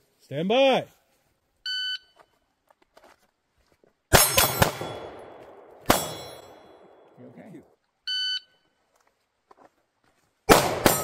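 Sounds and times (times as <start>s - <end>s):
steel target ringing: 4.1s - 5.3s, 5.9s - 7.0s
pistol shots echoing: 4.1s - 7.2s, 10.5s - 11.0s.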